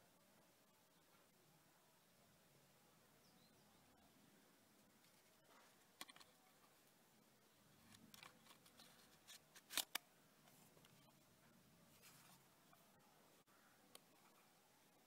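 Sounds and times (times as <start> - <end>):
sharp plastic clicks: 7.9 - 10.1.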